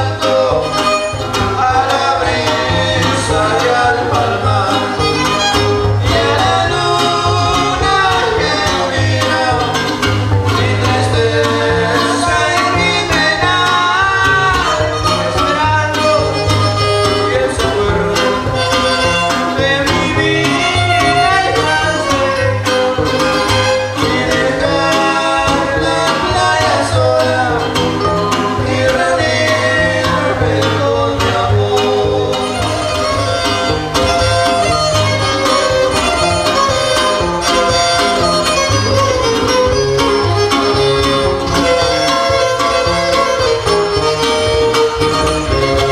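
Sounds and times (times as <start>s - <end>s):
man singing into microphone: 0.0s - 23.0s, 23.7s - 33.5s
strummed strings: 0.0s - 45.9s
violin: 0.0s - 45.9s.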